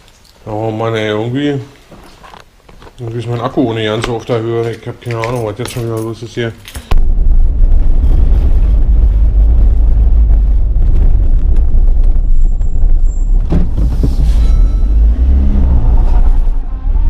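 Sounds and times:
car engine and road rumble: 6.9s - 17.0s.

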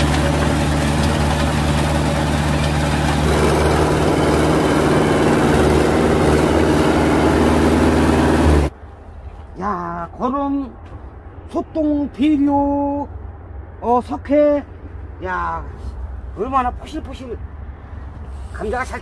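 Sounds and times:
rotary tiller in soil: 0.0s - 8.7s
tractor diesel engine running: 0.0s - 8.7s.

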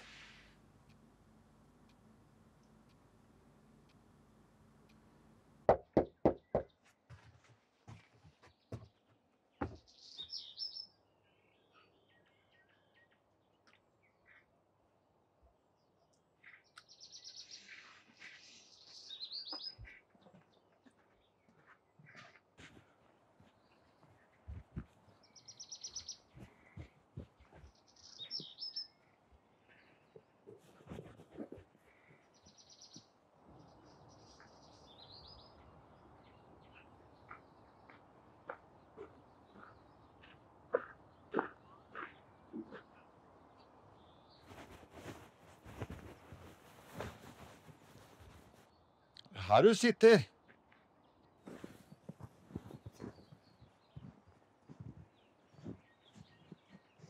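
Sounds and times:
birds chirping and trilling: 9.5s - 14.7s, 15.8s - 22.8s, 23.4s - 49.1s, 50.4s - 57.0s
songbird singing with trill: 9.9s - 14.3s, 16.5s - 17.7s, 18.7s - 19.9s, 25.2s - 26.4s, 27.9s - 29.0s, 32.4s - 38.0s.

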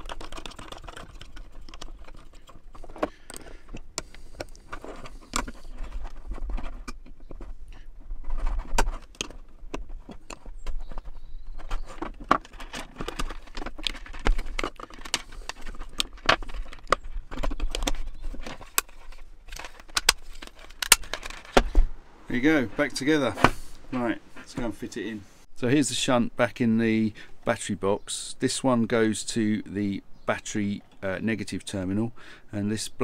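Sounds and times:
plastic case clicking: 11.6s - 21.8s.

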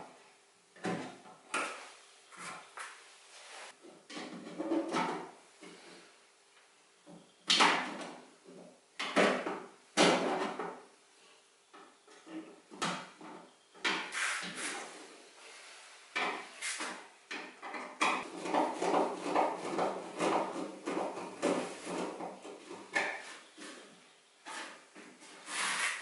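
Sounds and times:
knocks and scrapes on metal: 4.1s - 5.8s, 16.2s - 26.0s.

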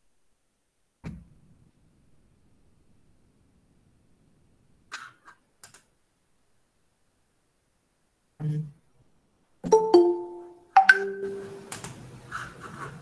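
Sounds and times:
marimba-like notification chime: 9.7s - 11.7s.

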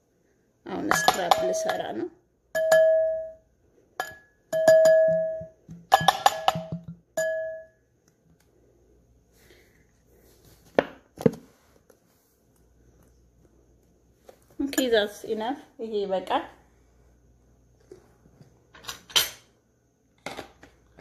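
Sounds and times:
spoon clinking against bowl: 0.9s - 1.9s, 2.5s - 3.4s, 4.0s - 7.7s.

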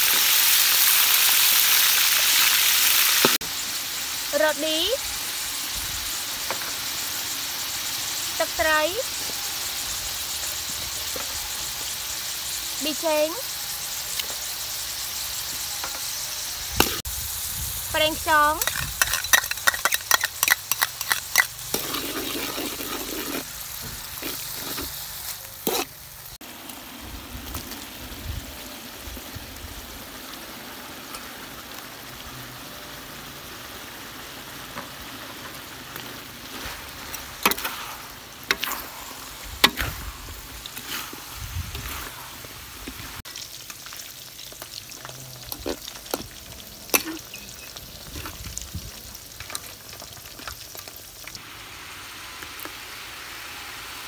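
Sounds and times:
food sizzling in wok: 0.0s - 54.0s
metal spatula scraping wok: 18.2s - 26.0s, 35.9s - 43.2s.

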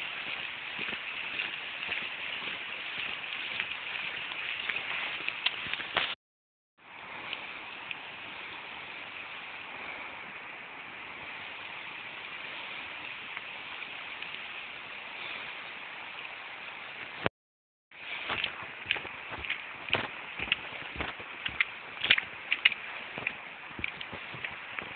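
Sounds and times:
water rushing: 0.0s - 6.2s, 18.0s - 24.9s.

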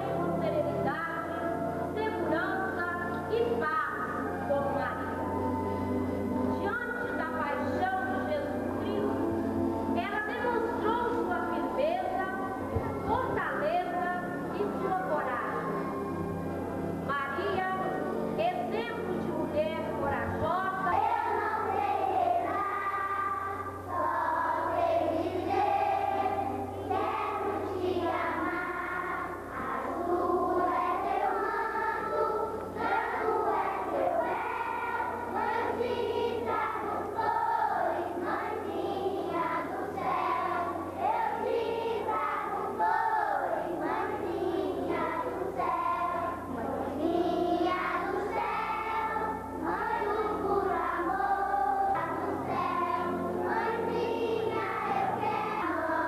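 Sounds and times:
children singing a hymn: 19.4s - 56.0s.

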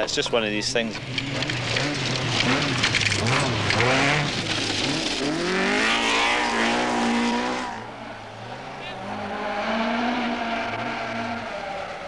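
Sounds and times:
car engine accelerating: 1.0s - 12.0s
rally car engine revving: 1.0s - 12.0s
stones spraying from tyres: 1.2s - 7.6s.

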